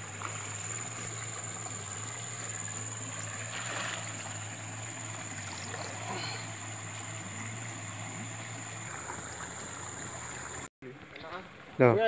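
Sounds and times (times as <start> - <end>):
net swishing in water: 3.3 - 4.4.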